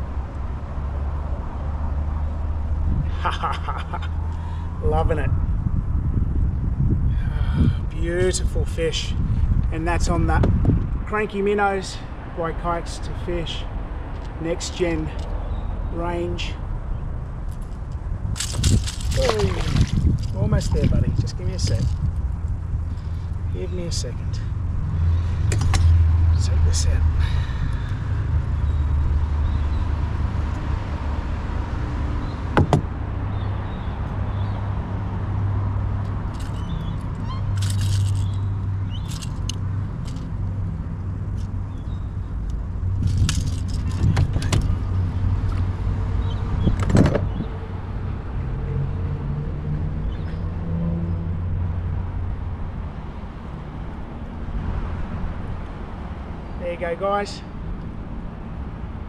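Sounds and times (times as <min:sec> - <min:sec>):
vehicle engine hum: 0:00.0 - 0:59.0
steady low rumble: 0:02.8 - 0:11.4, 0:17.2 - 0:29.4
metallic rattles of pliers and hooks: 0:18.4 - 0:20.9, 0:36.3 - 0:36.7, 0:37.6 - 0:38.4, 0:39.0 - 0:40.3, 0:43.0 - 0:44.7.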